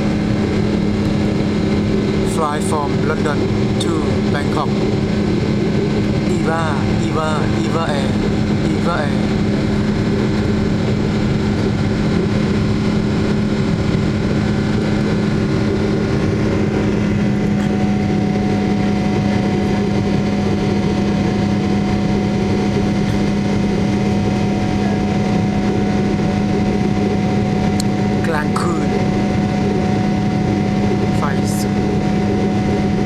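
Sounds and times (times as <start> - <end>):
jet engines droning: 0.0 - 33.0.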